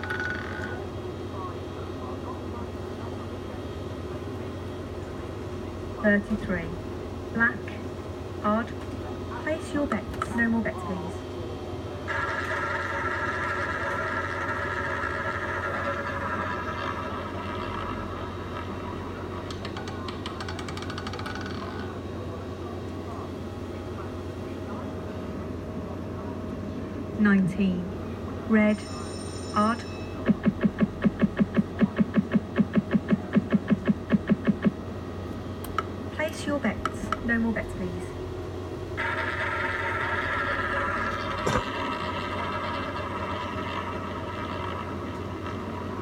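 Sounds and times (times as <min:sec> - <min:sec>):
roulette ball clicks settling: 0:00.0 - 0:00.8
roulette ball rolling whir: 0:00.0 - 0:00.8, 0:12.1 - 0:22.0, 0:28.8 - 0:34.8, 0:39.0 - 0:46.0
rapid electronic blips: 0:30.1 - 0:34.8.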